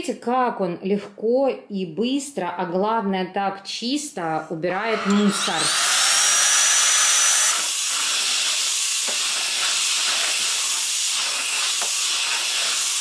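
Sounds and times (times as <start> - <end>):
stick vacuum running: 4.6 - 13.0.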